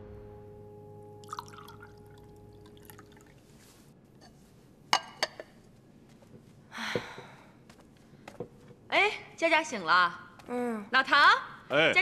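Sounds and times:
milk pouring into a glass: 0:01.2 - 0:03.4.

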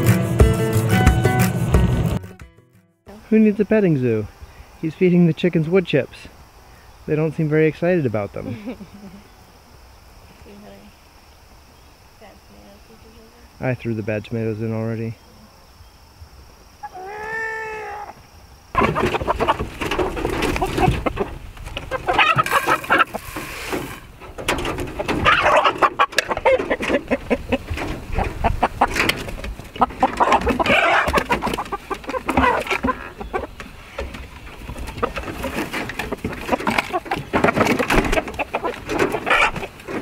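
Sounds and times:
chickens clucking and squawking: 0:08.3 - 0:10.1, 0:15.2 - 0:40.0
knocks and rustling: 0:18.8 - 0:40.0.

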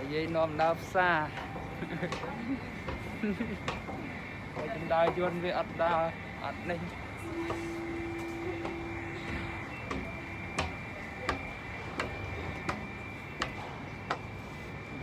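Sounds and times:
footsteps on hard walkway: 0:00.2 - 0:15.0
faint high-pitched tone: 0:03.4 - 0:15.0.

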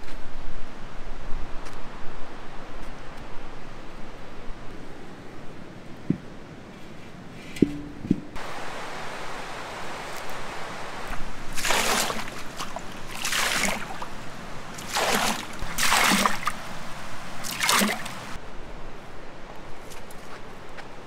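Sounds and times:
water splashing: 0:08.4 - 0:18.4.

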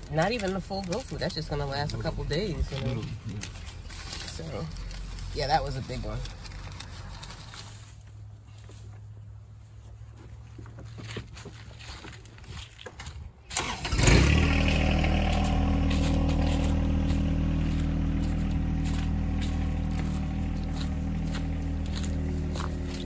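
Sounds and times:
vehicle engine cranking and idling: 0:00.0 - 0:08.3, 0:13.5 - 0:23.0.

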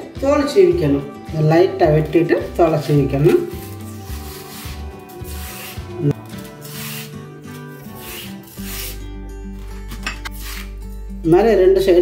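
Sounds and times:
soft background music: 0:00.0 - 0:12.0
knife scraping plantain peel: 0:02.7 - 0:10.8.

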